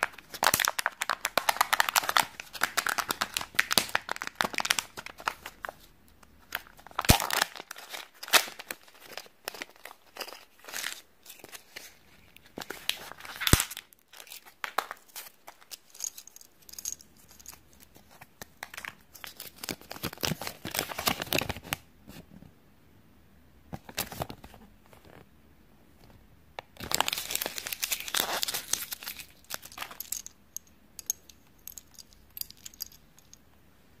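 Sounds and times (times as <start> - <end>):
paper leaflet crinkling: 26.8 - 30.2.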